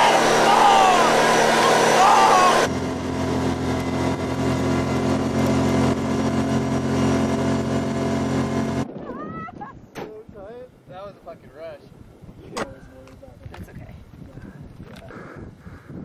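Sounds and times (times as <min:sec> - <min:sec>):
people shouting: 0:00.0 - 0:02.7.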